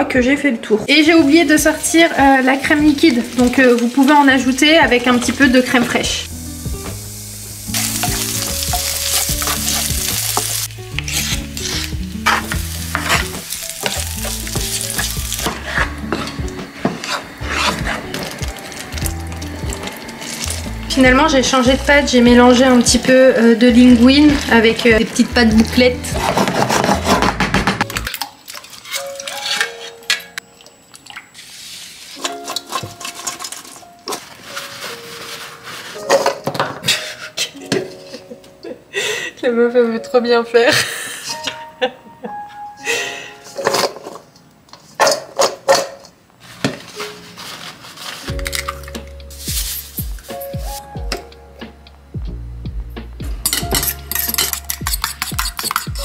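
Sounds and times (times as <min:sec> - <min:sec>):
background music with held notes: 0:00.0 - 0:28.2, 0:28.8 - 0:44.6, 0:46.6 - 0:56.0
food sizzling in a pan: 0:01.2 - 0:26.4, 0:31.3 - 0:32.8, 0:48.1 - 0:50.8
utensil scraping a pan: 0:07.8 - 0:19.0, 0:22.1 - 0:27.9, 0:28.6 - 0:30.1, 0:31.6 - 0:37.6, 0:53.4 - 0:56.0
kitchen clicks and knocks: 0:26.2 - 0:28.2, 0:36.0 - 0:38.0, 0:43.6 - 0:44.2, 0:44.8 - 0:46.9, 0:53.4 - 0:56.0.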